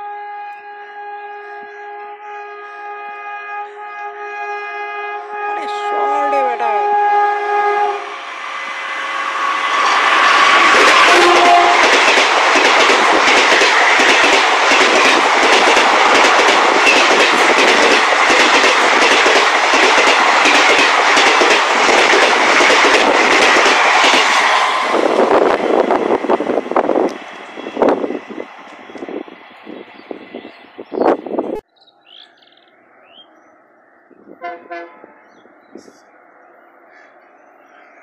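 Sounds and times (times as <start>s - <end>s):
train horn: 0.0s - 12.1s, 34.4s - 35.2s
train rushing past: 5.3s - 31.6s
wheels clacking over rail joints: 9.6s - 26.3s.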